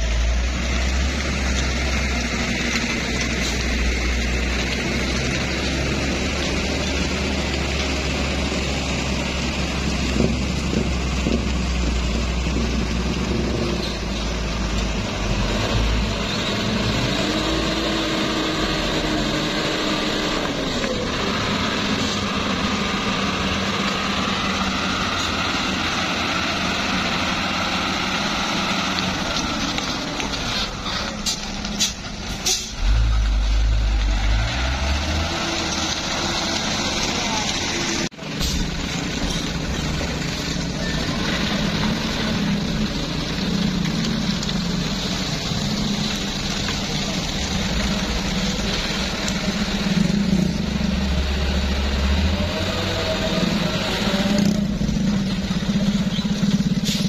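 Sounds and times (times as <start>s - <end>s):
truck diesel engine under load: 0.0s - 57.0s
heavy low rumble: 30.0s - 52.5s.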